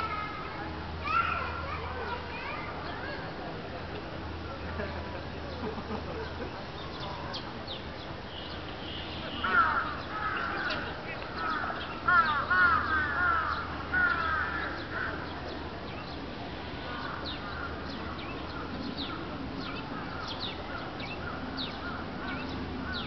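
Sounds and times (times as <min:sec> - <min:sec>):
crows cawing: 0:09.4 - 0:15.2.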